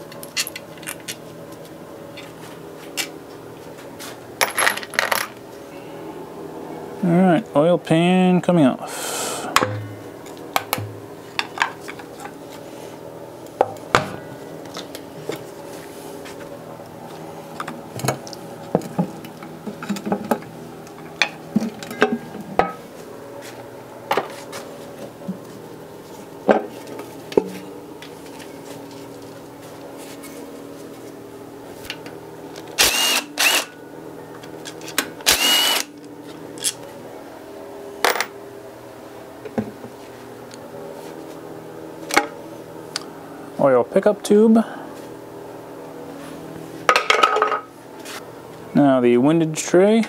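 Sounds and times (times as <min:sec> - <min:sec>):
cordless power tool whirring: 0:32.8 - 0:33.8, 0:35.2 - 0:35.9.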